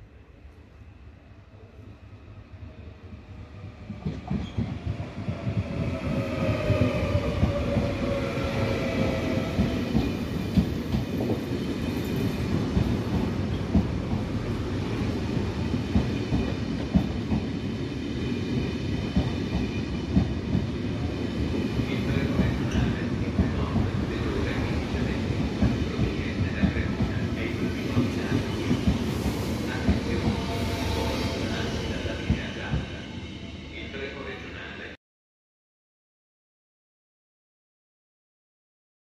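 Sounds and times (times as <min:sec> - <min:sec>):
train wheels rumbling on rail: 0:03.7 - 0:33.9.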